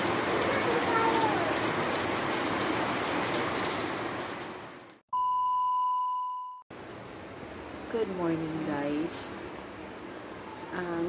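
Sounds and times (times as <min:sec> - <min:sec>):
heavy rain pouring: 0:00.0 - 0:05.0.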